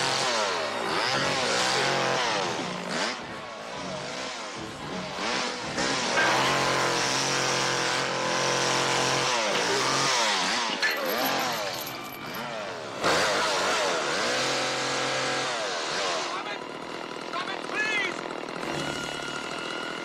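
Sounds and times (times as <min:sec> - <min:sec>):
chainsaw engine revving: 0:00.0 - 0:20.0.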